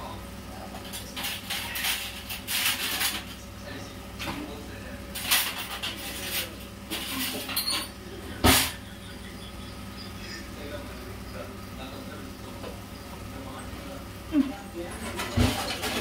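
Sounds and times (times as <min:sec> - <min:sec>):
electrical hum: 0:00.0 - 0:16.0
kitchen rustling and scraping: 0:00.8 - 0:03.5, 0:05.1 - 0:08.8, 0:14.8 - 0:16.0.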